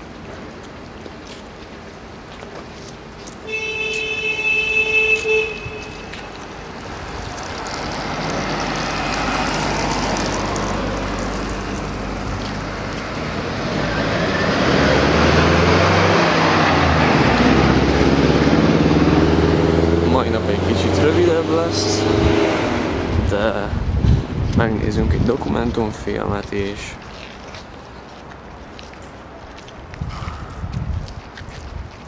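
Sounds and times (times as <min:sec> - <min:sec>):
road traffic passing: 0:00.0 - 0:32.0
vehicle horn: 0:03.4 - 0:06.3.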